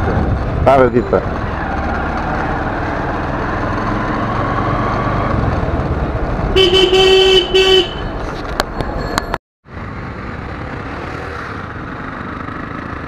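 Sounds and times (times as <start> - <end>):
motorcycle engine: 0.0 - 8.6, 9.7 - 13.0
road rumble: 0.0 - 13.0
horn honking: 6.6 - 8.2.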